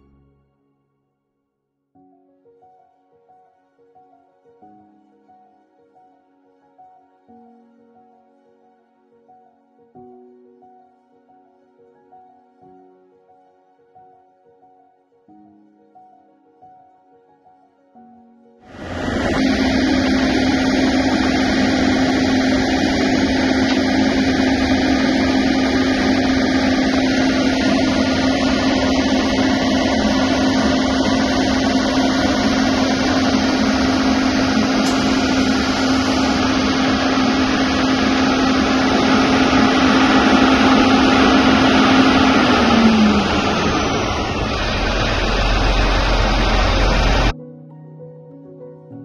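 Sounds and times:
diesel engine droning: 18.7 - 47.3.

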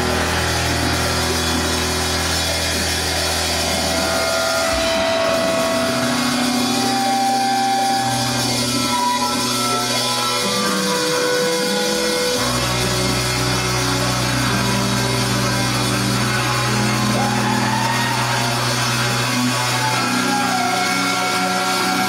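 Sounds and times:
deep bass note: 0.0 - 22.0
sustained instrument tones: 0.0 - 22.0.

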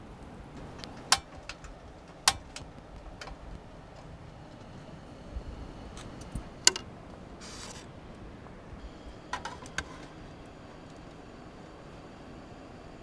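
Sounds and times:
gas burner hiss: 0.0 - 13.0
stove igniter clicks: 0.8 - 3.4.

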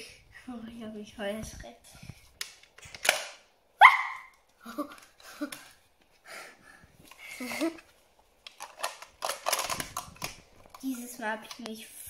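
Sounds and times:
girl squealing: 3.8 - 4.3
girl giggling: 4.2 - 5.7, 7.3 - 7.8.

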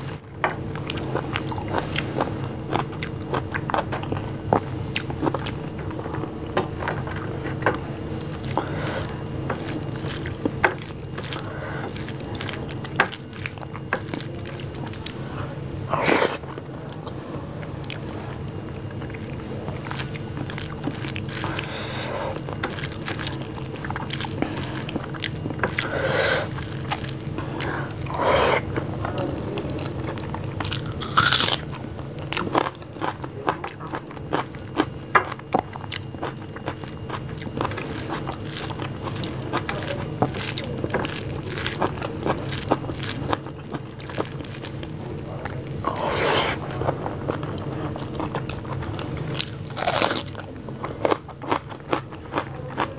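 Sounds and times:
wet chewing: 0.7 - 15.2, 17.8 - 52.9
crunchy bite of onion: 30.6 - 52.9.

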